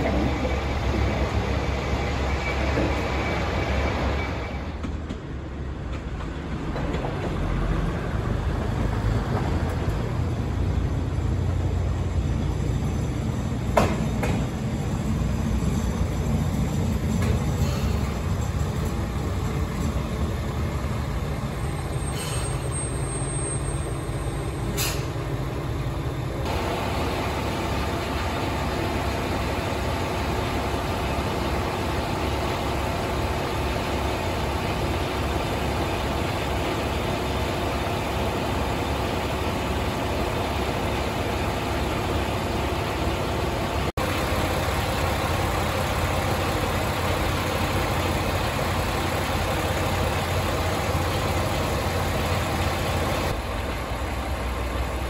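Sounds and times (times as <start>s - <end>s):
diesel railcar engine idling: 0.0s - 55.0s
brief air hisses: 22.1s - 22.7s, 24.7s - 25.2s.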